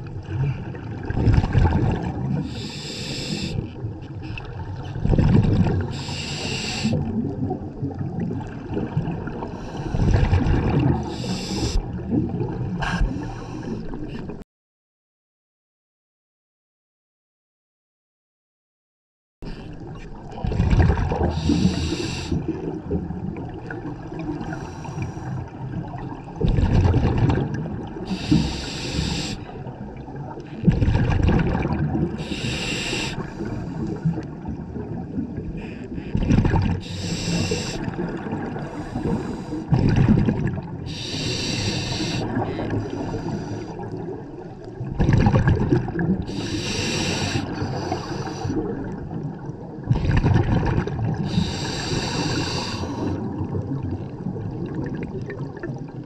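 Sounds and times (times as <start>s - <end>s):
exhaled bubbles rumbling underwater: 0.0s - 14.4s, 19.5s - 56.0s
regulator inhale hiss: 2.5s - 3.6s, 5.9s - 7.0s, 11.1s - 11.8s, 21.3s - 22.4s, 24.5s - 25.4s, 28.1s - 29.5s, 32.2s - 34.0s, 36.8s - 38.0s, 38.7s - 39.7s, 40.9s - 43.8s, 46.3s - 48.6s, 51.3s - 53.2s.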